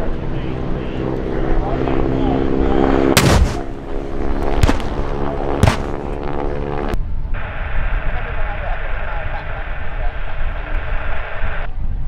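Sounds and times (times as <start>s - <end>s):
propeller aircraft engine droning: 0.0s - 11.7s
pyrotechnic blasts: 3.2s - 6.8s.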